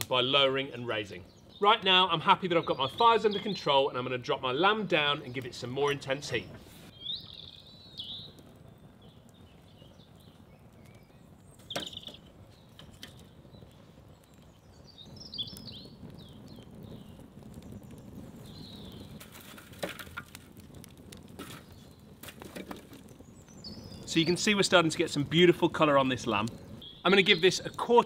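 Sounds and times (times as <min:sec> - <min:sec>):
burning logs cracking: 0:00.0 - 0:28.0
small birds chirping: 0:00.0 - 0:28.0
wood fire burning: 0:00.0 - 0:28.0.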